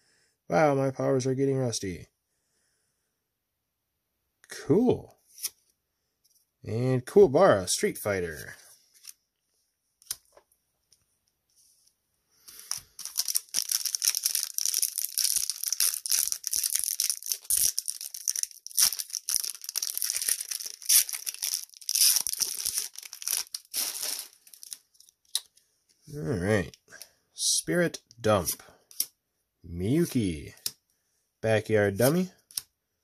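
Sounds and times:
wrapper being torn and crinkled: 0:12.5 - 0:25.4.

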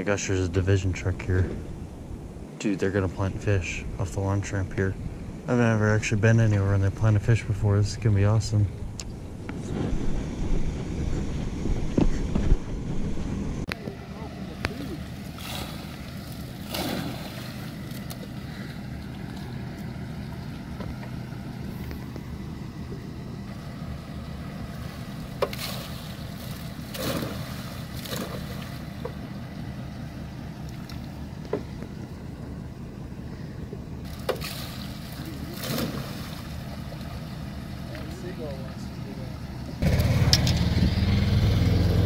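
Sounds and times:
truck engine low drone: 0:00.0 - 0:42.0
fish splashing into water: 0:14.6 - 0:20.6, 0:24.8 - 0:29.0, 0:34.1 - 0:37.5.

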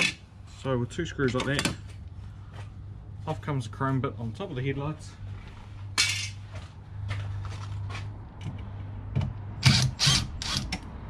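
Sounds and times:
low steady hum: 0:00.0 - 0:11.0
tools and parts clinking: 0:01.2 - 0:02.0, 0:05.9 - 0:06.6.

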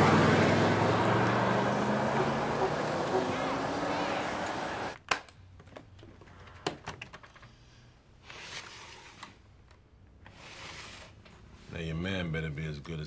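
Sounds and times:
street traffic: 0:00.0 - 0:05.0.

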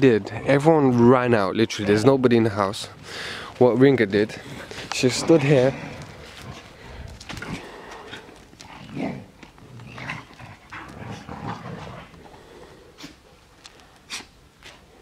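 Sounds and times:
huskies making excited vocal sounds: 0:03.0 - 0:14.4.

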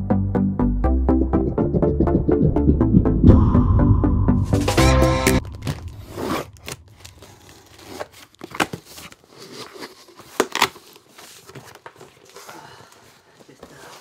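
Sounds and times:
tape tearing: 0:05.4 - 0:12.3.

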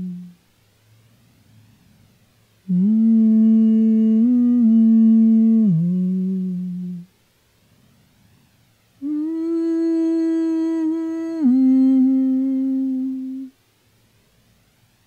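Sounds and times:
person humming: 0:00.0 - 0:00.4, 0:02.7 - 0:07.1, 0:09.0 - 0:13.6.

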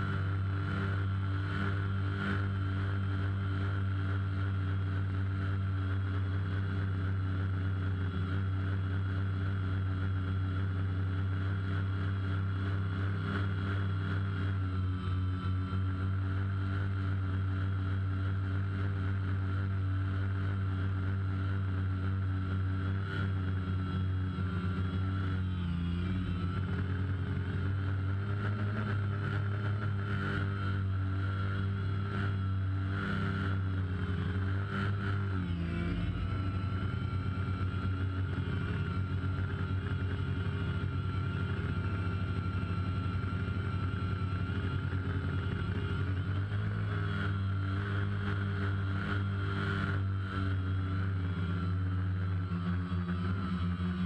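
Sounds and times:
drone propellers buzzing: 0:00.0 - 0:54.0.

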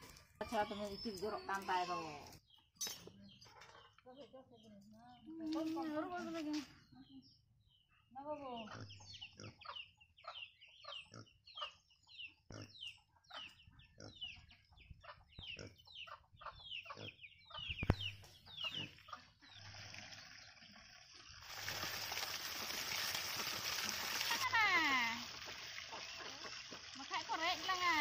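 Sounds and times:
chickens chirping: 0:08.6 - 0:19.6, 0:25.3 - 0:26.9
tap water splashing: 0:21.5 - 0:24.5.

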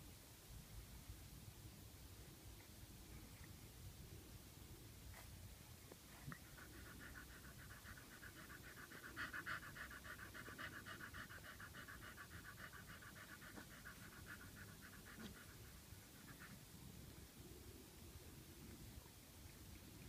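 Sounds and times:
dog panting quickly: 0:06.1 - 0:17.0.

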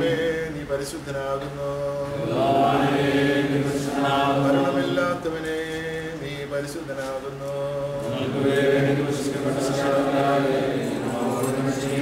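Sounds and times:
group singing a hymn: 0:00.0 - 0:00.4, 0:02.0 - 0:06.4, 0:07.6 - 0:12.0.

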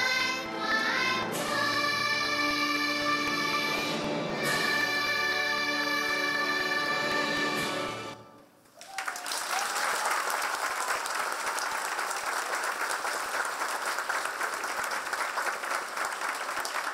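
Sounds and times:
music: 0:00.0 - 0:08.6
audience applauding: 0:08.7 - 0:16.9.

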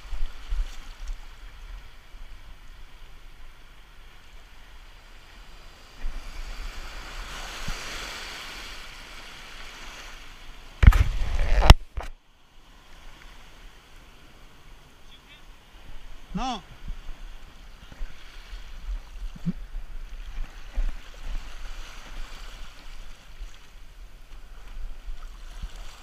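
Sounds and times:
surf washing over rocks: 0:00.0 - 0:26.0.

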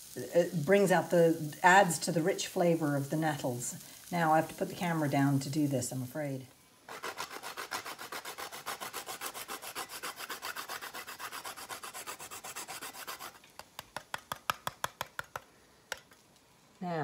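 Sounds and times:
nutmeg grating on metal grater: 0:06.9 - 0:13.4.

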